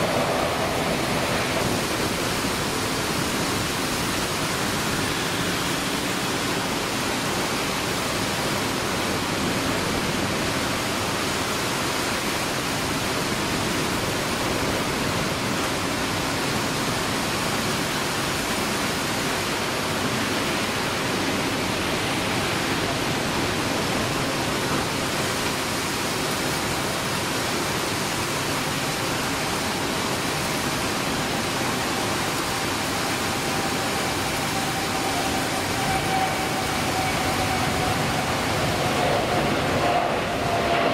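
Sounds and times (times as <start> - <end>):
faint jet engine whine: 0.0 - 40.9
heavy rain hiss: 0.0 - 40.9.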